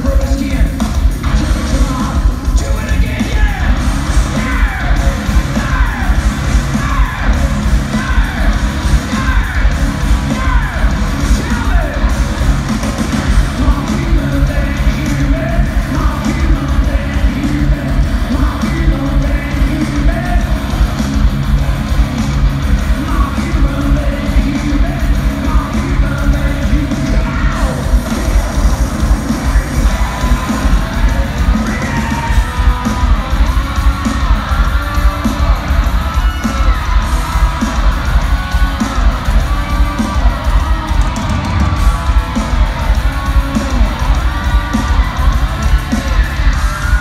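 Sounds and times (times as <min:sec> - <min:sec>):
singer shouting vocals: 0:00.0 - 0:12.5, 0:13.1 - 0:20.9, 0:22.8 - 0:47.0
distorted guitars: 0:00.0 - 0:47.0
heavy drums: 0:00.0 - 0:47.0.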